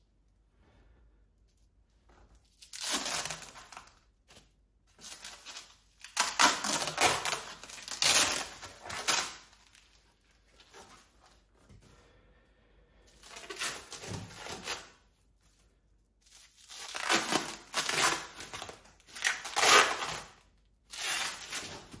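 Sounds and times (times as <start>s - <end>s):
packaging crinkling and tearing: 2.4s - 11.5s, 16.2s - 22.0s.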